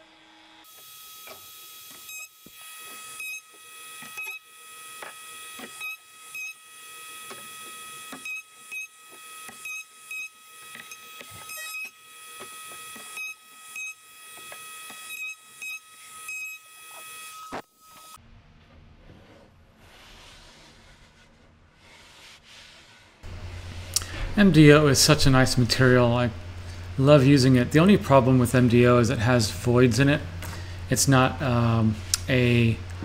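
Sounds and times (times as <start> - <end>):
steady high hum: 23.2 - 33.0.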